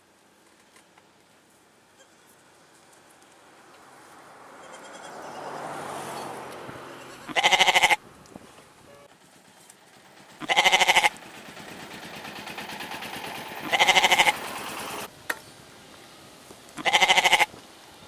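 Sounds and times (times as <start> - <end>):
goats bleating: 7.2 - 8.0, 10.4 - 11.1, 13.6 - 14.4, 16.8 - 17.5.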